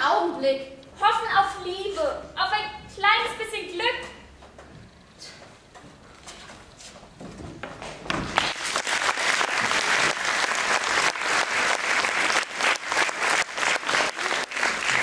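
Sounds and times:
audience applauding: 8.3s - 15.0s.

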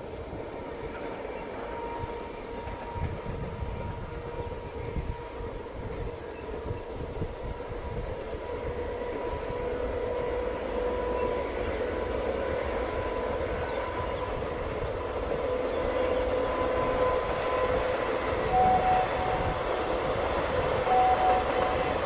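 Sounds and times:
locomotive hum: 0.0s - 22.0s
train wheels rumbling on rail: 0.0s - 22.0s.

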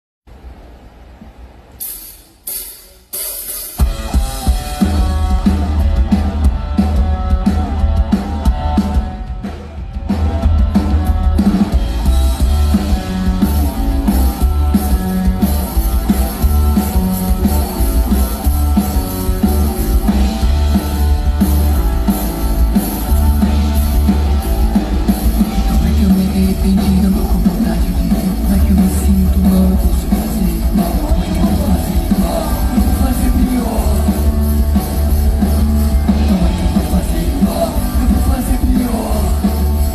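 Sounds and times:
rock band playing live: 1.8s - 39.9s.

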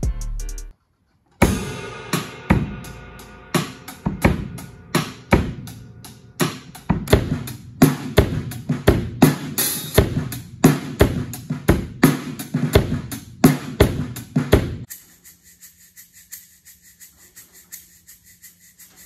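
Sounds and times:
acoustic drum kit playing: 0.0s - 0.7s, 1.4s - 14.9s.

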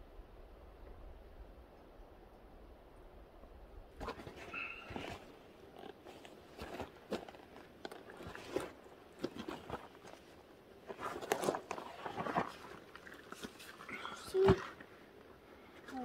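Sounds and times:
backpack straps rustling: 4.0s - 12.7s.

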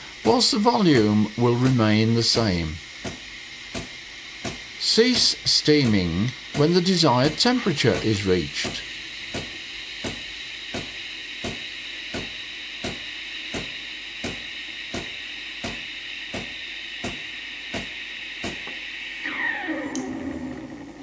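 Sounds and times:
steam wand hissing: 0.0s - 19.8s
pump ticking: 0.2s - 18.7s.

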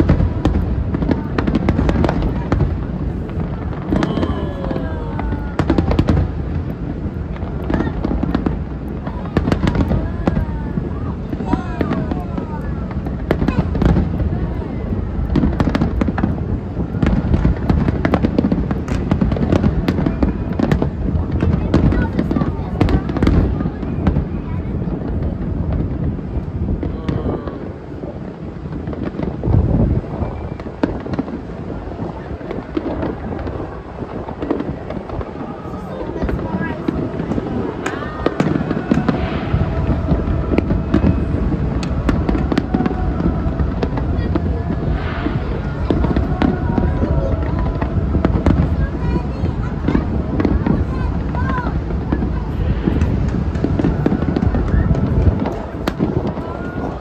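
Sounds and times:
fireworks cracking: 0.0s - 57.0s
low rumble: 31.4s - 57.0s.

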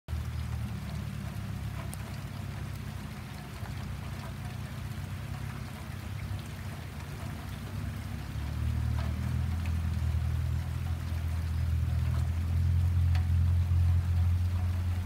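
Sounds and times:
rain pattering: 0.1s - 15.0s
freight train locomotive rumble: 0.2s - 15.0s.

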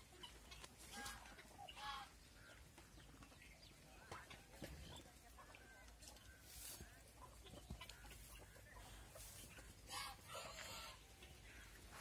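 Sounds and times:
chickens clucking: 0.0s - 12.0s
soft rustling: 5.7s - 10.0s.

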